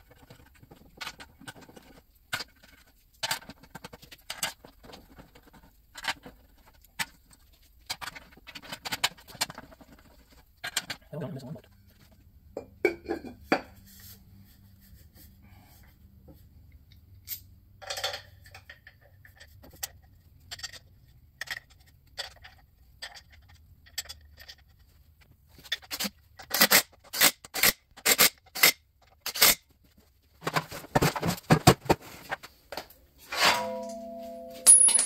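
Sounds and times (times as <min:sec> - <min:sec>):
bolts and tools clinking: 0:33.3 - 0:35.0
metal clank with ring: 0:33.4 - 0:35.0.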